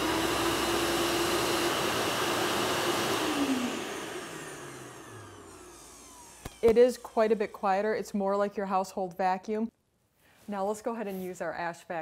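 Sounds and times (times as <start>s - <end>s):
vacuum motor whirring: 0.0s - 8.1s.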